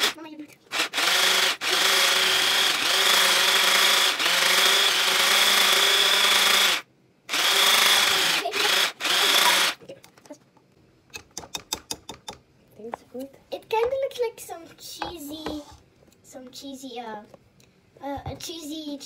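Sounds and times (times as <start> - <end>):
electric hand blender whisking: 0.0 - 9.8.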